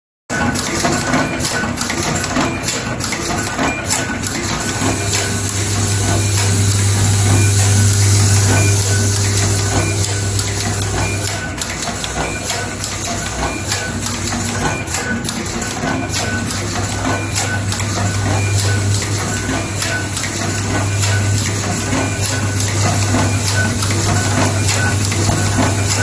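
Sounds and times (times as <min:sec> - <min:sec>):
steady low hum: 0:04.6 - 0:11.5.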